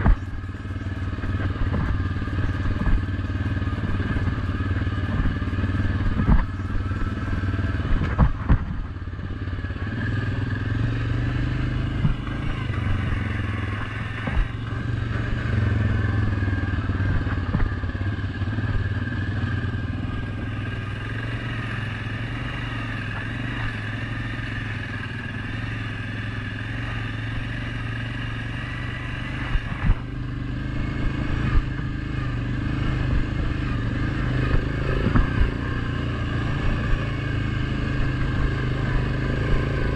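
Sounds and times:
atv clattering over bumps: 0.0s - 9.3s, 11.2s - 19.4s, 31.1s - 39.9s
atv engine running: 0.0s - 39.9s.

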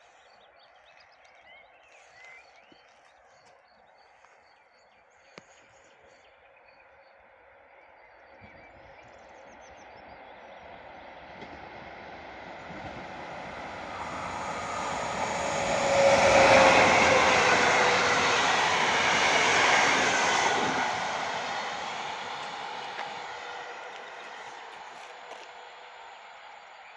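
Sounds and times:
train wheels on rails: 10.6s - 26.7s.

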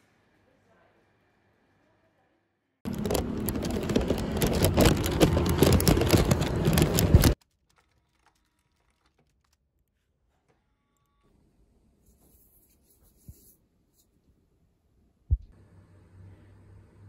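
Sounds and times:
plastic packaging crinkling: 2.9s - 9.7s.

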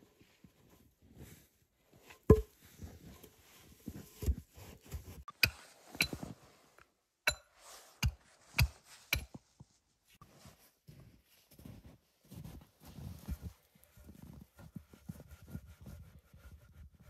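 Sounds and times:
log thudding down: 2.3s - 2.5s
crunching in snow: 10.4s - 14.7s.

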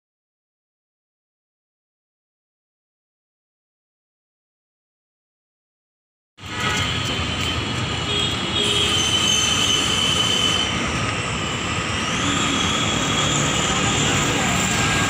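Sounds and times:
motor traffic din: 6.4s - 15.0s
high whining tones: 9.0s - 15.0s.

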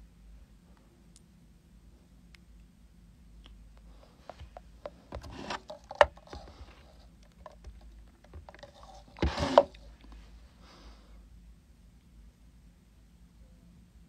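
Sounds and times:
rustling: 4.0s - 10.4s
handling clicks and taps: 4.3s - 9.8s.

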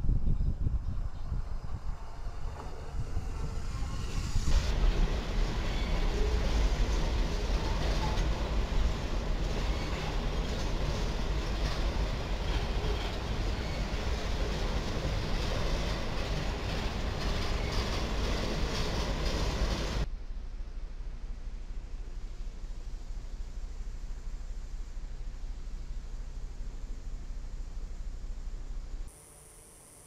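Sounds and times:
freight train cars rolling past: 0.7s - 20.1s.

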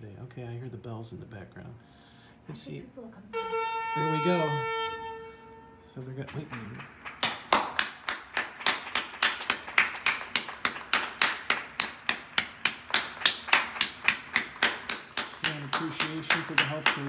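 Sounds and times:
hands clapping: 6.2s - 17.0s.

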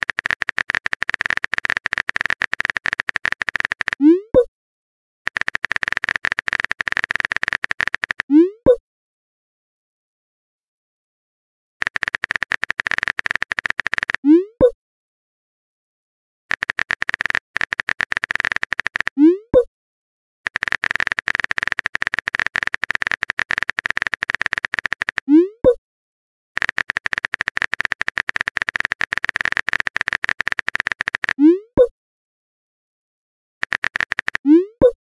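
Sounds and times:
keyboard typing clicks: 0.0s - 4.5s, 5.3s - 8.8s, 11.8s - 14.8s, 16.5s - 19.7s, 20.5s - 25.8s, 26.6s - 31.9s, 33.6s - 35.0s.

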